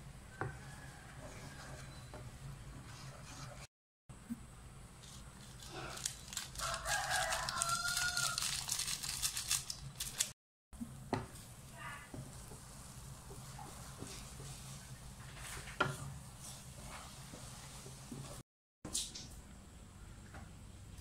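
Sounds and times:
rooster crowing: 0:00.3 - 0:02.0, 0:06.5 - 0:08.7
plastic sachet crackling: 0:05.0 - 0:10.4.

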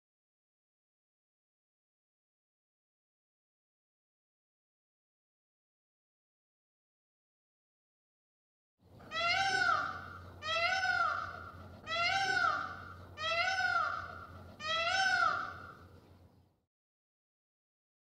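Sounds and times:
peacock wailing calls: 0:09.0 - 0:15.8.

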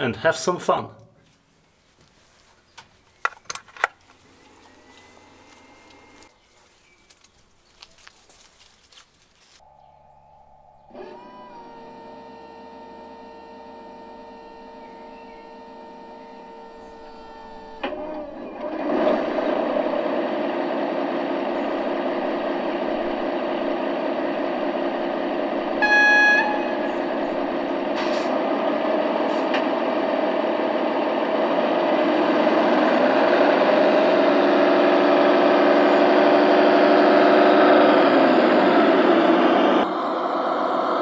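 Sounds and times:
diesel engine revving: 0:04.2 - 0:06.4, 0:10.4 - 0:41.0
diesel engine idling: 0:04.2 - 0:06.8, 0:09.8 - 0:41.0
locomotive horn blast: 0:24.2 - 0:28.6.

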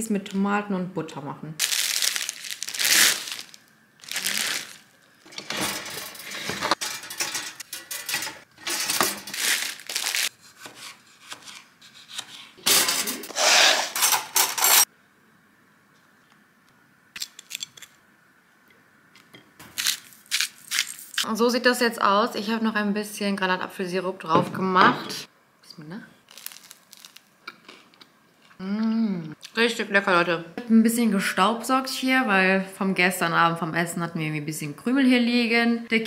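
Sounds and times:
plastic bag rustling: 0:01.6 - 0:06.8, 0:08.8 - 0:10.3
dishes clinking: 0:05.3 - 0:09.3.

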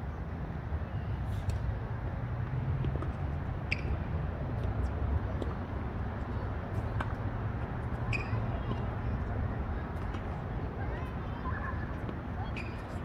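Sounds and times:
tennis balls struck with racquets: 0:02.4 - 0:09.0.

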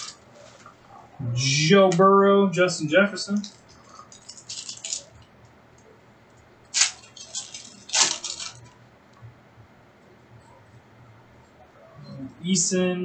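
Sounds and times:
cards and wrappers crinkling: 0:03.3 - 0:05.3, 0:06.7 - 0:08.8.

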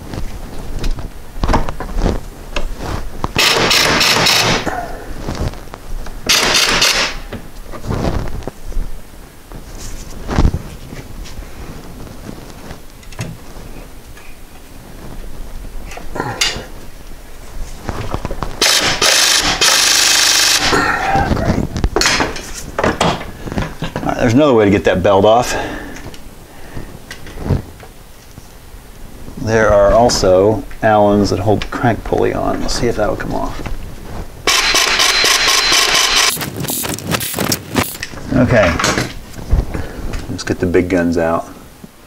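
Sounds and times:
impact wrench hammering: 0:03.4 - 0:04.7, 0:06.3 - 0:07.3, 0:18.6 - 0:20.7, 0:34.5 - 0:36.9.

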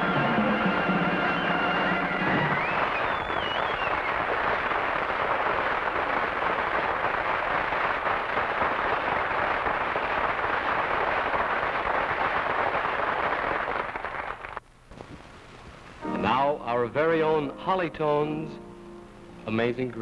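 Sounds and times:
audience applauding: 0:00.0 - 0:14.6.

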